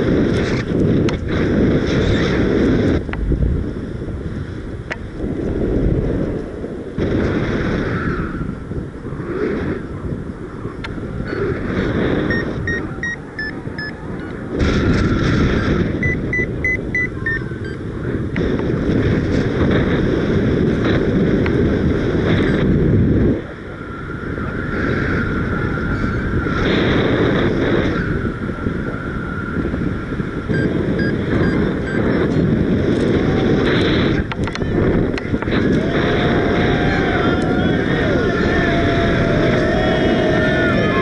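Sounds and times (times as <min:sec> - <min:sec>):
wind rushing over microphone: 0:00.0 - 0:41.0
quick even beeps: 0:12.2 - 0:14.0, 0:16.0 - 0:17.8, 0:30.5 - 0:32.0.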